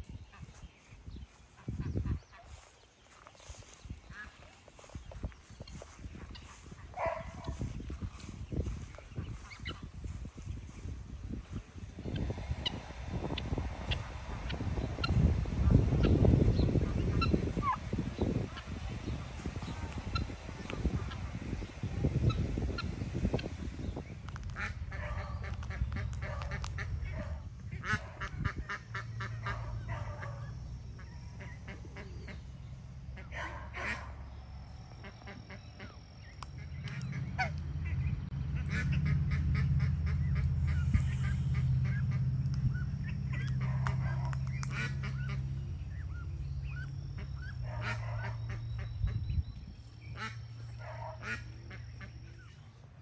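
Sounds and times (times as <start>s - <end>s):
low steady hum: 0.0s - 53.0s
poultry honking calls: 11.5s - 23.6s, 24.5s - 32.5s, 33.1s - 49.4s, 50.0s - 52.6s.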